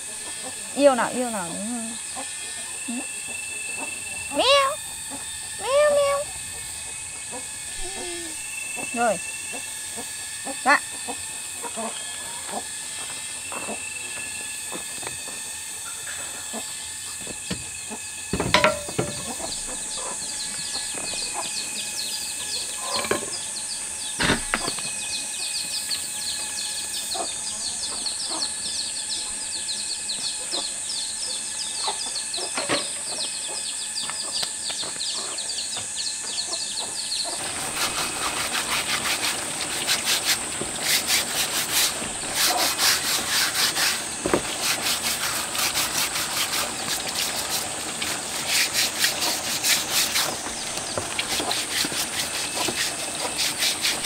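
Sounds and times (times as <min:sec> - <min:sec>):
high-pitched drone: 0:00.7 - 0:24.0
sharp knocks: 0:18.3 - 0:19.5
brush scrubbing rubber sandal: 0:37.4 - 0:54.0.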